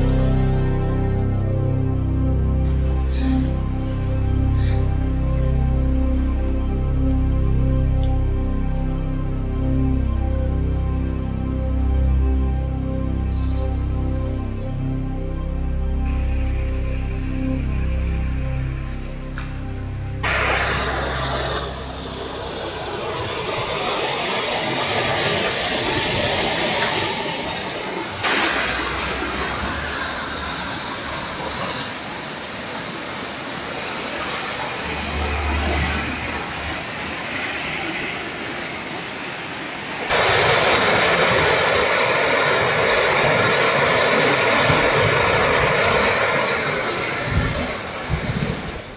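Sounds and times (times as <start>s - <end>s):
floodwater rushing in rapids: 20.2s - 48.9s.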